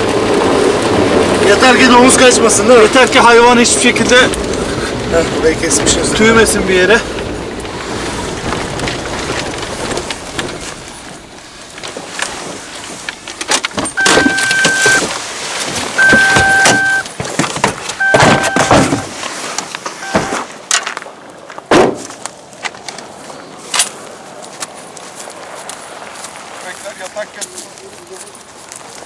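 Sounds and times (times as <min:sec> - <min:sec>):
knocks and rustling: 0:07.2 - 0:22.9
car cabin noise: 0:07.8 - 0:19.3, 0:19.9 - 0:20.5
car door opening: 0:13.4 - 0:15.1, 0:15.7 - 0:19.2, 0:20.0 - 0:20.5
car warning chime beeping: 0:14.0 - 0:15.1, 0:16.0 - 0:17.1, 0:18.0 - 0:19.1, 0:20.0 - 0:20.4
heavy thud of door shutting: 0:18.1 - 0:19.1.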